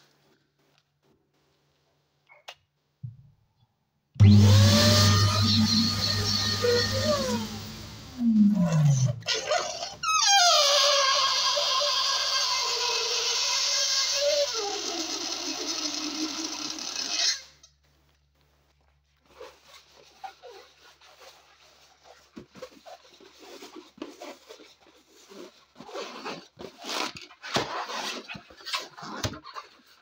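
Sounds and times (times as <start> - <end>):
air squealing out of balloon: 4.2 - 17.5
balloon rubbing and squeaking: 4.2 - 17.6, 19.2 - 30.0.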